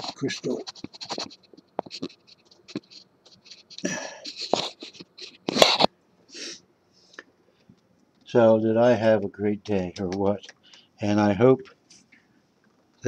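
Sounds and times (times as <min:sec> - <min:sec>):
webcam scraping against crystal: 0:00.0 - 0:05.9.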